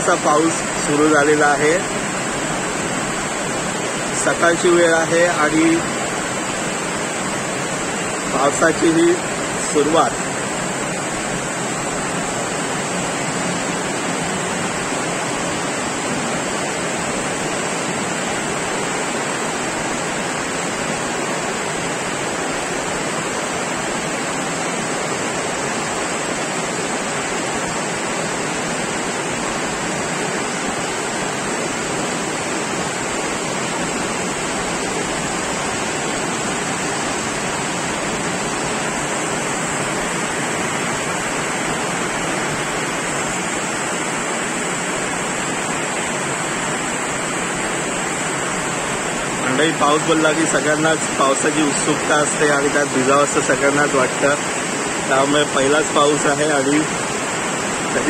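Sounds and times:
torrential rain pouring: 0.0 - 58.0.

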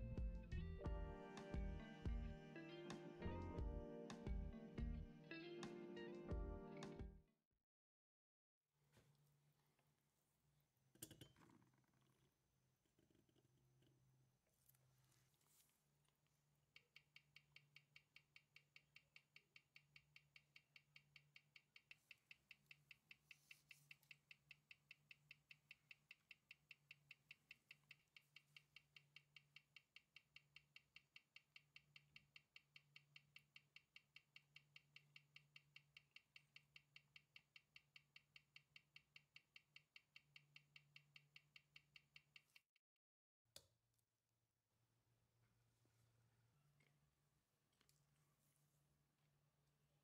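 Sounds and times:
faint watch ticking: 16.7 - 42.6.

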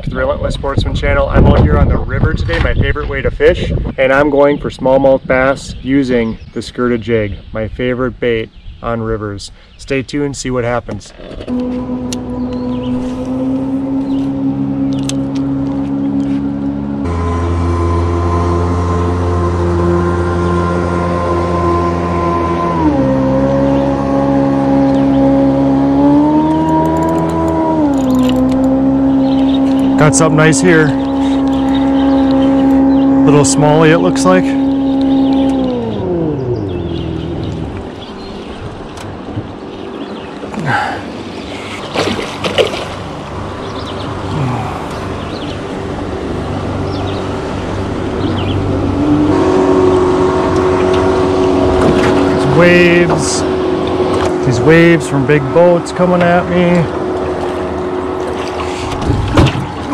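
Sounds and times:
electric motor humming: 11.4 - 39.2.

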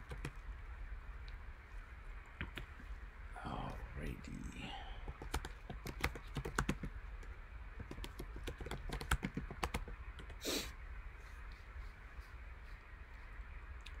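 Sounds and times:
computer keyboard key clicks: 5.1 - 6.9, 7.8 - 10.4.

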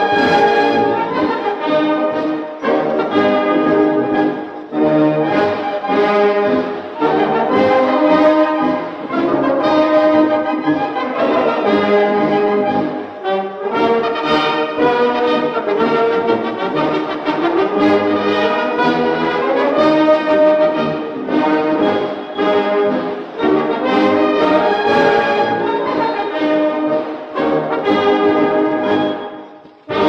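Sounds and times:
brass band playing: 0.0 - 30.0.

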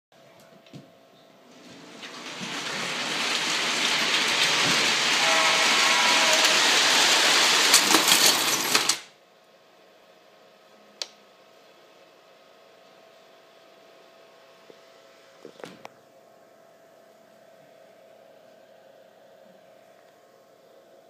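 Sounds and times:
toy locomotive running: 1.6 - 9.1
clatter of knocks crashing: 1.9 - 9.1
toy train horn: 4.0 - 8.6.

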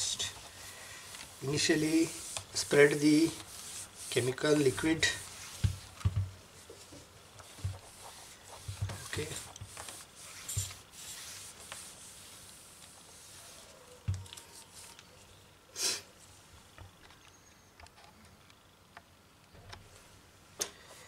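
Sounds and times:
cloth rubbing on a screen: 0.0 - 15.0.

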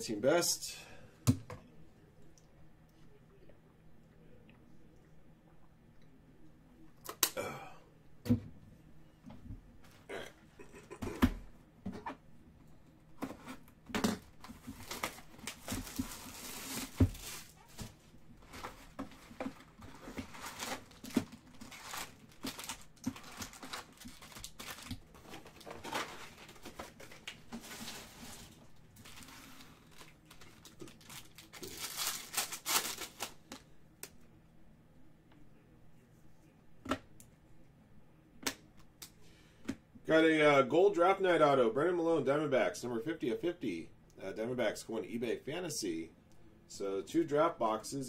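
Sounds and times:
foil wrappers tearing and crinkling: 14.6 - 17.8, 18.4 - 33.5.

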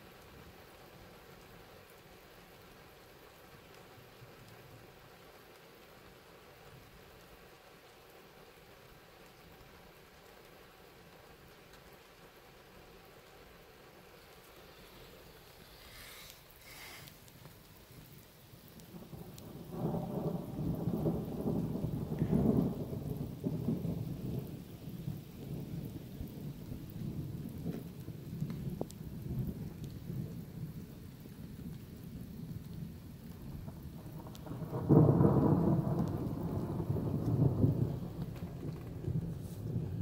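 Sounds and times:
rolling thunder: 18.0 - 40.0
thunder crack: 19.0 - 24.6, 33.6 - 40.0.

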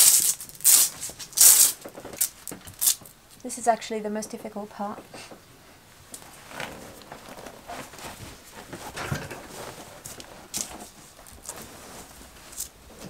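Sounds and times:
cloth cover rustling: 0.0 - 3.0, 6.1 - 13.0
foam cushion rubbing and bumping: 6.3 - 13.0.

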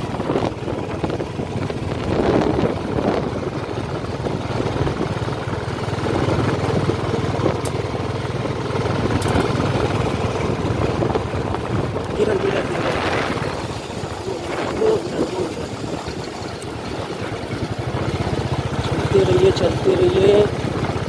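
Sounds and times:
road rumble on dirt track: 0.0 - 21.0
vehicle engine running: 0.0 - 21.0.

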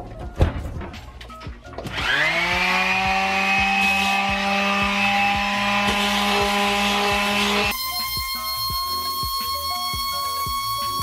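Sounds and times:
electric sander running: 1.9 - 7.7.

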